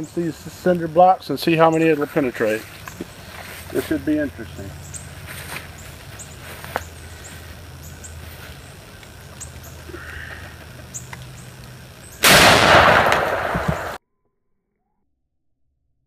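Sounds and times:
rifle shot: 12.2s - 14.0s.

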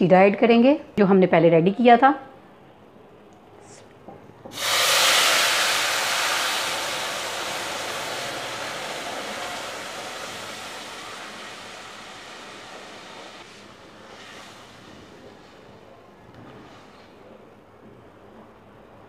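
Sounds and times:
syrup sizzling in hot ghee: 4.5s - 15.2s.

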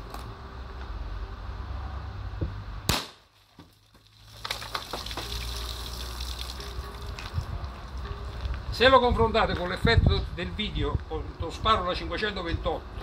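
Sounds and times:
sharp gunshot: 2.9s - 3.3s
water splattering onto gravel: 2.9s - 7.5s.

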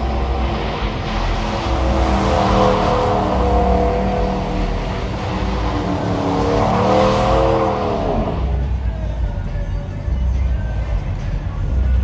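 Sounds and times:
truck engine running hard: 0.0s - 12.0s.

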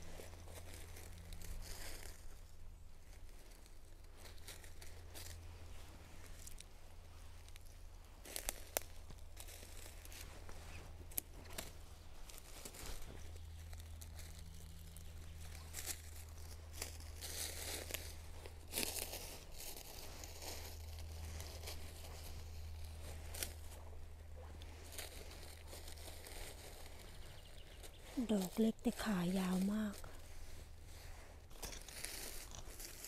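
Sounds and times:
dry leaves crackling and rustling: 0.0s - 33.0s.

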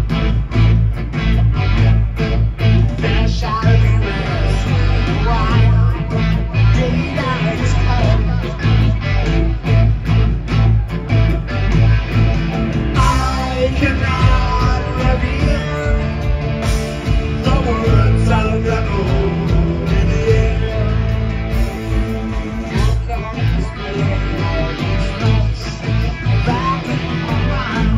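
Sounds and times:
bass guitar: 0.0s - 27.9s
drums: 0.0s - 27.9s
electric guitars: 0.0s - 27.9s
person singing: 2.9s - 9.3s, 13.0s - 27.9s.

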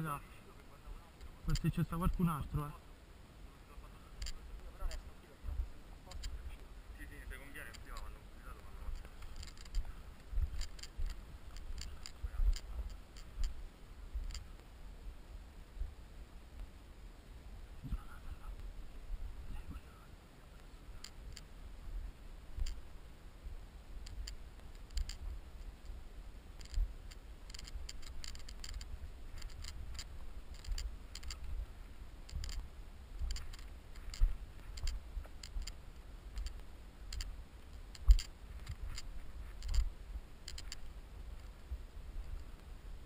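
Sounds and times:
footsteps on stony ground: 8.7s - 13.6s, 32.3s - 37.3s
gear clicks and knocks: 8.9s - 13.5s, 24.0s - 25.3s, 26.6s - 31.5s, 32.3s - 32.6s, 33.2s - 35.8s, 36.4s - 41.5s.

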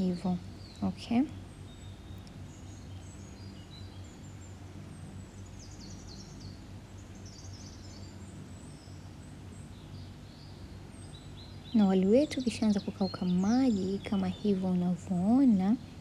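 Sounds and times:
birds chirping and trilling: 0.0s - 16.0s
steady low hum: 0.0s - 16.0s.

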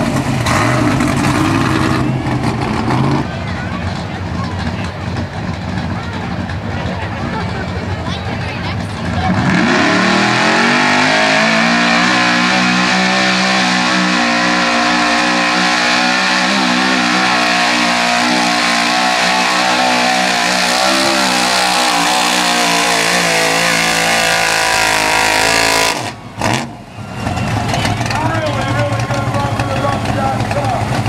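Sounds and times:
truck engine at high revs: 0.0s - 31.0s.

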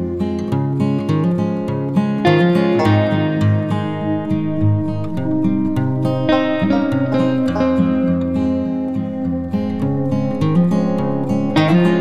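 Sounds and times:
plucked acoustic guitar music: 0.0s - 12.0s.

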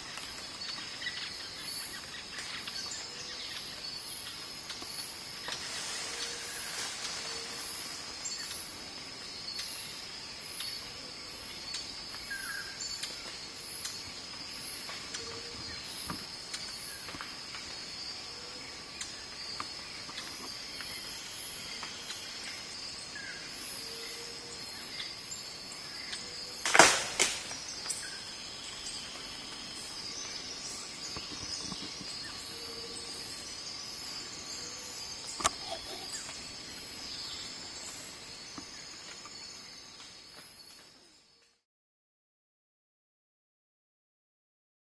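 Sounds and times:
high pulsing insect trill: 0.0s - 41.4s
insects droning: 0.0s - 41.6s
loud sharp crack: 26.6s - 27.6s.

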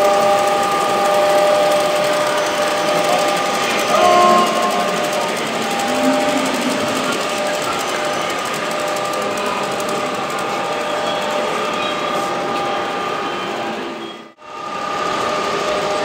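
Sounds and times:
model train wheels clicking: 0.0s - 13.3s
steady background hum: 0.4s - 13.2s
held tones: 2.4s - 9.0s.

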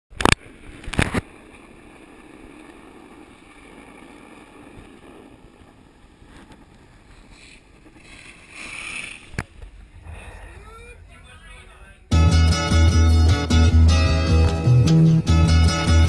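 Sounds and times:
skis sliding on packed snow: 0.1s - 10.8s.

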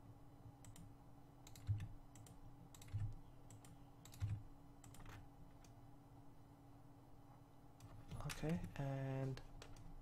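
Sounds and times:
faint steady hum: 0.0s - 10.0s
keyboard and mouse clicks: 0.6s - 5.8s, 9.6s - 9.9s.

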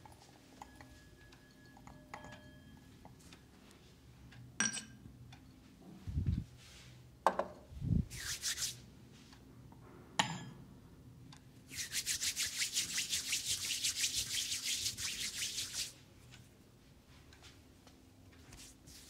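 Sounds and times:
clink: 0.6s - 3.2s, 4.6s - 5.0s, 10.2s - 10.6s
hands rubbing together: 7.9s - 8.8s, 11.7s - 16.0s, 18.5s - 19.0s.

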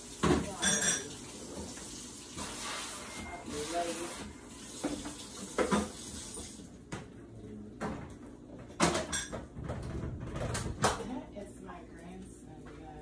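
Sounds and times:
kitchenware knocking and clinking: 0.2s - 1.2s, 4.9s - 6.0s, 7.8s - 11.1s.

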